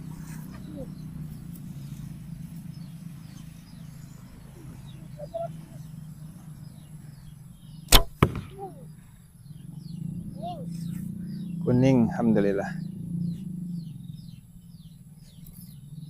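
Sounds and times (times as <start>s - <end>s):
faint bird chirps: 0.0s - 16.0s
arrow striking target: 7.9s - 8.7s.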